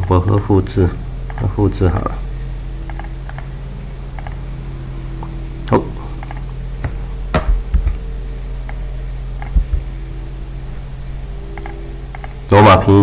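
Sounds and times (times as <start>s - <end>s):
keyboard and mouse clicks: 0.0s - 0.5s, 1.3s - 2.1s, 2.9s - 3.5s, 4.2s - 4.4s, 6.2s - 8.0s, 9.4s - 9.9s, 11.6s - 12.4s
steady low hum: 0.0s - 13.0s.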